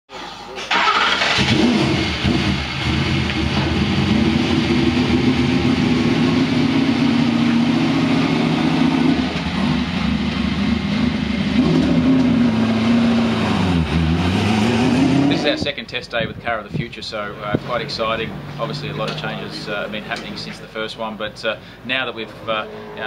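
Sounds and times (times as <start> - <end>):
racing car engine idling: 1.5 - 12.6.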